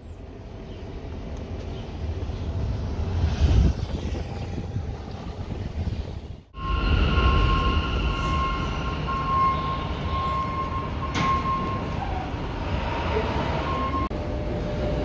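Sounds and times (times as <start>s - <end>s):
train rumble: 0.0s - 15.0s
high-pitched train whine: 6.5s - 15.0s.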